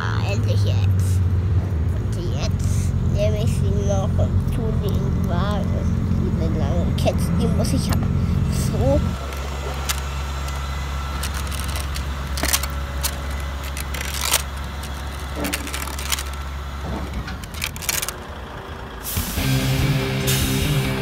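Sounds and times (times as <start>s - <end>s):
steady low hum: 0.0s - 21.0s
metal chain clinking into plastic: 9.2s - 16.5s, 17.2s - 18.2s.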